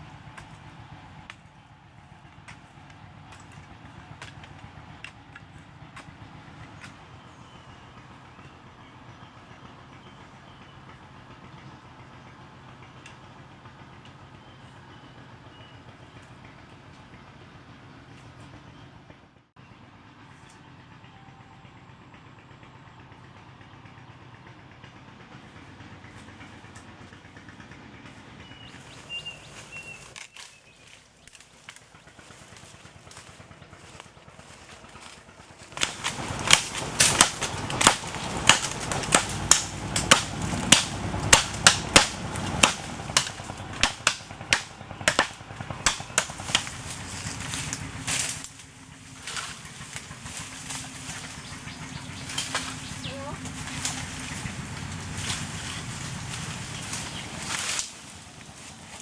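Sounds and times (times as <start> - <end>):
dry twigs cracking and snapping: 2.3 - 7.1, 29.6 - 51.6, 52.2 - 59.0.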